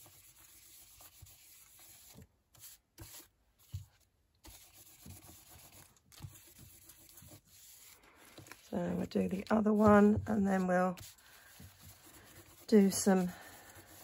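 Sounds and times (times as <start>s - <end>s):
brush scrubbing cardstock: 0.0s - 14.0s.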